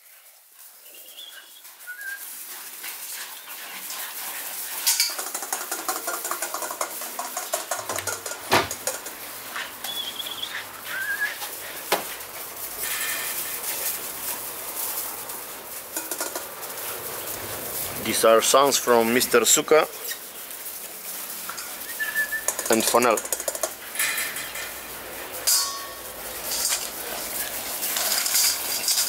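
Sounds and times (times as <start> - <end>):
paws crunching on gravel: 0.6 - 7.4, 8.8 - 25.4
puppies squeaking: 9.8 - 11.5, 21.8 - 22.7.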